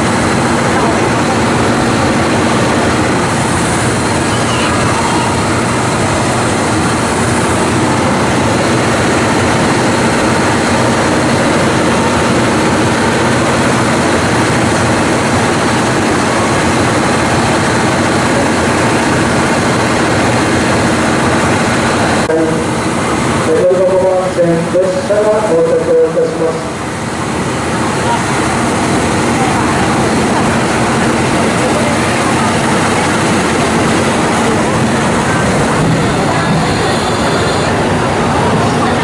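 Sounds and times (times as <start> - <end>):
train diesel engines: 0.0 - 39.0
train wheels on rails: 26.4 - 39.0.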